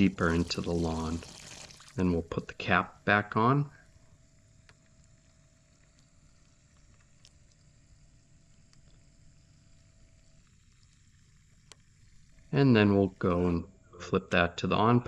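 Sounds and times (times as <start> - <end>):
faint ticks: 3.8 - 12.6.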